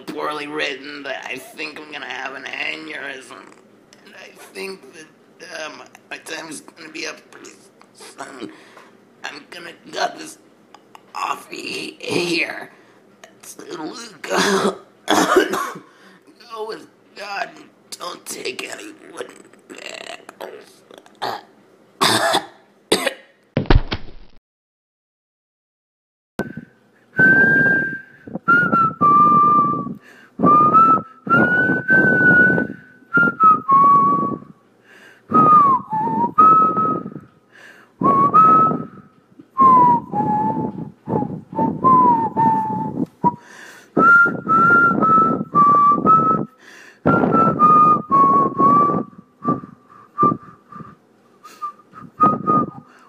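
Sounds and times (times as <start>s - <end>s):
person whistling a tune: 26.4s - 34.5s, 35.3s - 37.2s, 38.0s - 53.0s.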